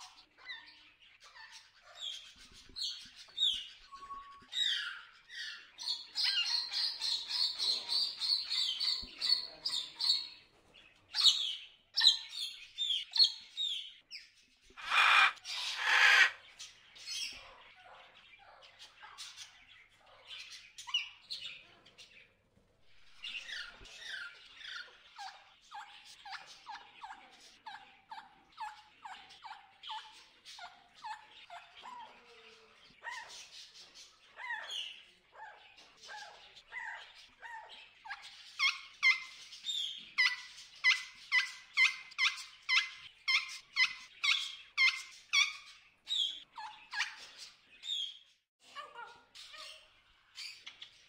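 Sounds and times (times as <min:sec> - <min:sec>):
macaws calling harshly: 0:14.8 - 0:16.5.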